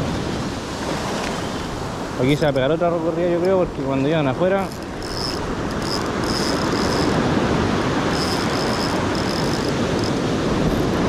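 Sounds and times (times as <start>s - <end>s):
surf washing: 0.0s - 11.0s
fishing reel drag squealing: 4.6s - 7.3s, 8.1s - 10.9s.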